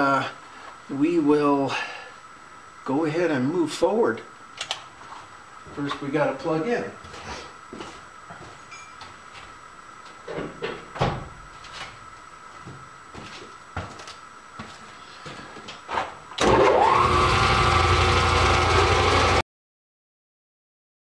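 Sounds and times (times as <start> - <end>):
lathe motor whine: 16.4 - 19.4.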